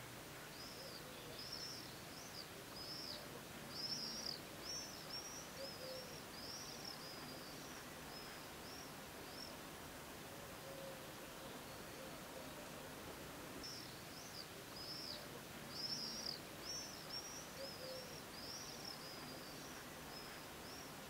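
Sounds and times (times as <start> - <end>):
steady background hiss: 0.0 - 21.0
small bird chirping: 0.6 - 9.6, 13.6 - 21.0.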